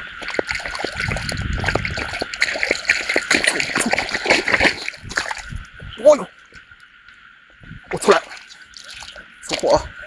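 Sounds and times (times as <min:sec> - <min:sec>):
water dripping and splashing: 0:00.0 - 0:05.8, 0:07.9 - 0:09.8.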